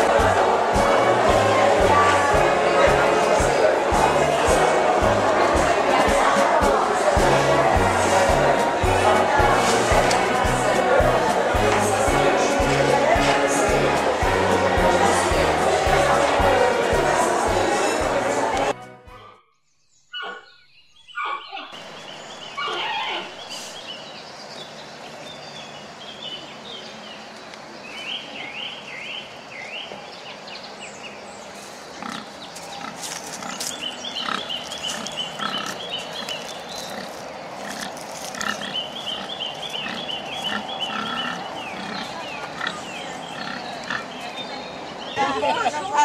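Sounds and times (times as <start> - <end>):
pigs grunting: 31.9 - 44.2.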